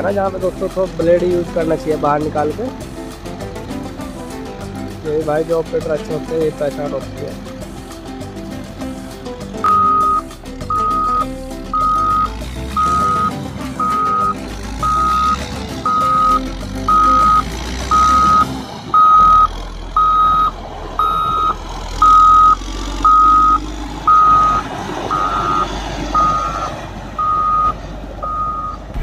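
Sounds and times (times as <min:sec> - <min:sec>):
diesel engine running: 0:00.0 - 0:29.0
reversing alarm beeping: 0:09.6 - 0:29.0.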